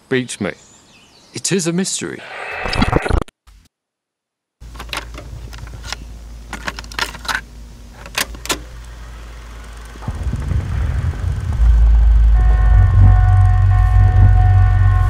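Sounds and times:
steady low hum: 4.6s - 15.0s
low rumble: 9.9s - 15.0s.

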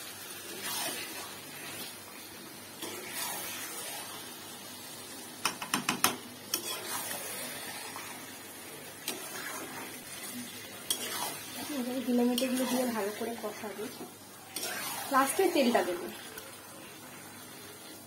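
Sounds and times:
food sizzling: 0.0s - 18.0s
spatula scraping in a pan: 0.4s - 2.0s, 2.8s - 4.4s, 6.5s - 8.3s, 9.0s - 16.5s
spatula knocking on pan: 5.4s - 6.2s.

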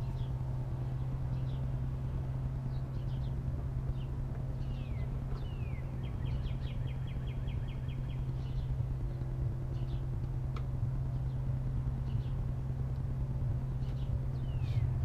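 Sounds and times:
small engine idling: 0.0s - 15.0s
songbird calling: 2.7s - 8.8s, 13.7s - 15.0s.

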